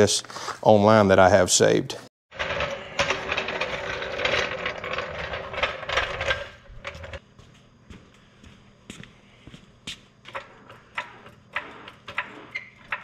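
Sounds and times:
floor jack rolling on concrete: 0:02.3 - 0:07.2, 0:10.3 - 0:13.0.

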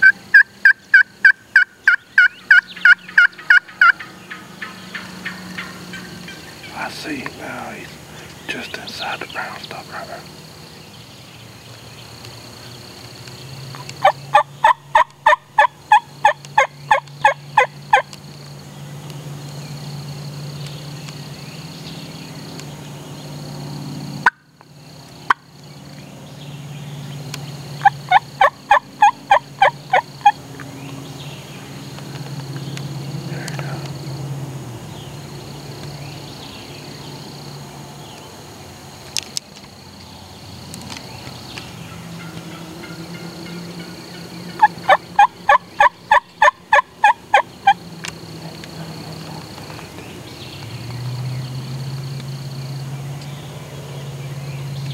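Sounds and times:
wild turkey yelping: 0:00.0 - 0:10.3, 0:13.8 - 0:18.0, 0:27.8 - 0:30.4, 0:41.9 - 0:47.8.

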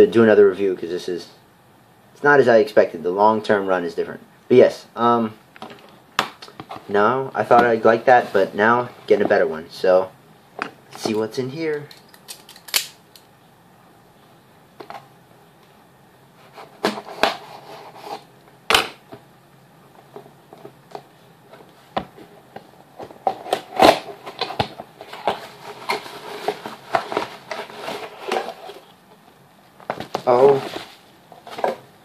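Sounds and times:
rustle of box flaps and packing: 0:23.0 - 0:28.9, 0:29.8 - 0:31.9.

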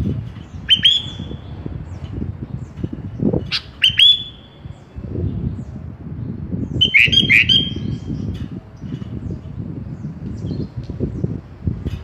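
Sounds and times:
bird whistled calls: 0:00.6 - 0:01.5, 0:03.5 - 0:04.6, 0:06.7 - 0:08.2.

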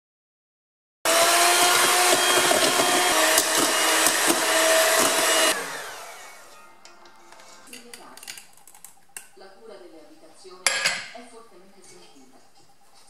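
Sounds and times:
electric hand mixer whine: 0:01.1 - 0:06.7.

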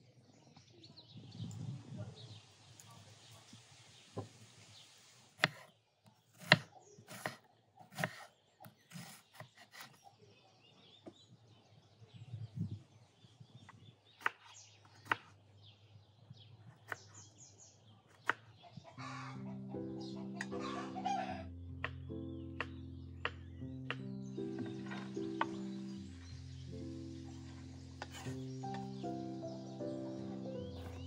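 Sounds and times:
faint birds chirping: 0:00.0 - 0:31.0
knife hitting wooden cutting board: 0:05.4 - 0:05.6, 0:06.4 - 0:07.4, 0:28.0 - 0:28.8.

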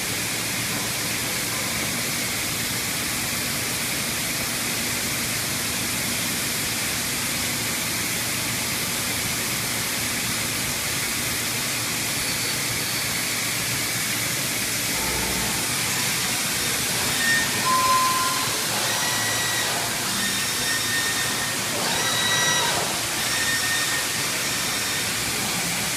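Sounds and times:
high-pressure coolant spraying: 0:00.0 - 0:25.9
machine axes whining: 0:14.8 - 0:25.9.

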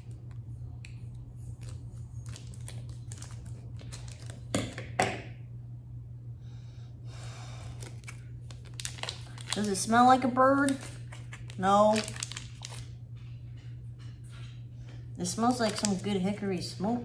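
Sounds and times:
steady low hum: 0:00.0 - 0:17.0
plastic wrapper crinkling and tearing: 0:01.5 - 0:04.6, 0:07.8 - 0:13.0, 0:15.5 - 0:16.2.

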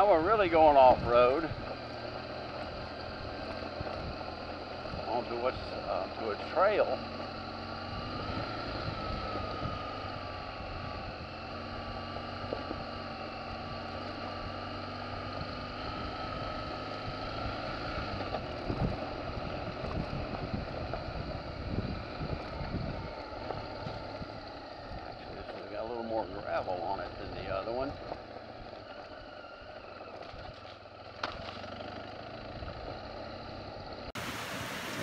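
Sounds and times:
motorcycle engine running: 0:00.0 - 0:35.0
knocks from bumps and gravel: 0:30.2 - 0:31.8.

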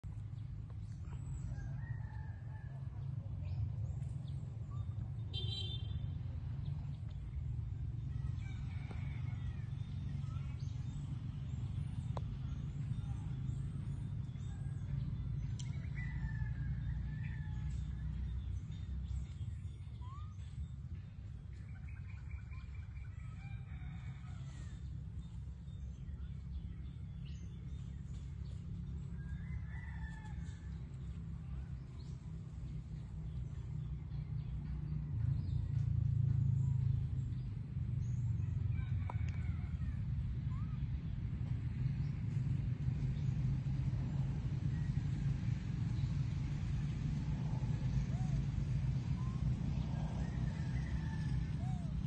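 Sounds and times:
steady low rumble: 0:00.0 - 0:52.0
birds chirping and calling: 0:47.5 - 0:52.0.

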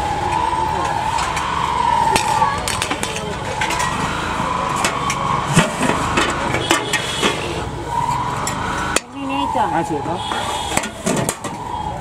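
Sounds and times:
ladle clinking against steel pots: 0:06.2 - 0:07.4.

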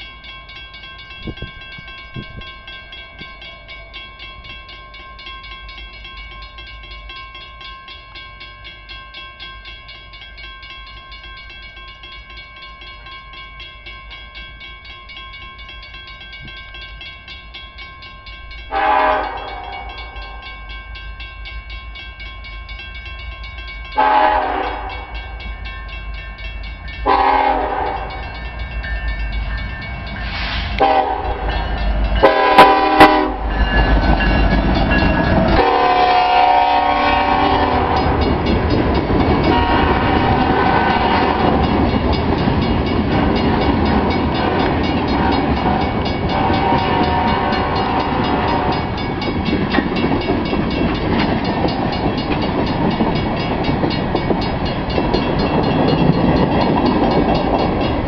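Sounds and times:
crossing bell ringing: 0:00.0 - 0:58.0
locomotive horn blasts: 0:18.7 - 0:19.9, 0:24.0 - 0:25.2, 0:27.0 - 0:28.2, 0:30.8 - 0:31.5, 0:32.2 - 0:33.5, 0:35.6 - 0:38.2, 0:39.5 - 0:41.6, 0:45.7 - 0:48.9
locomotive rumble: 0:23.5 - 0:58.0.

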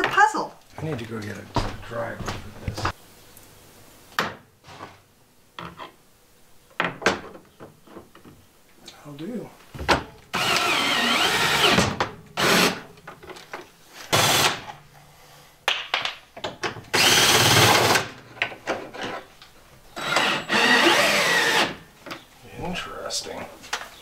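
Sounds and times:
cordless drill driving screws: 0:10.3 - 0:12.8, 0:14.1 - 0:14.6, 0:16.9 - 0:18.1, 0:20.0 - 0:21.8.

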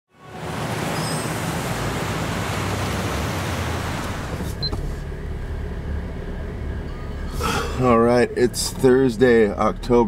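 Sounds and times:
car cabin rumble: 0:03.2 - 0:10.0.

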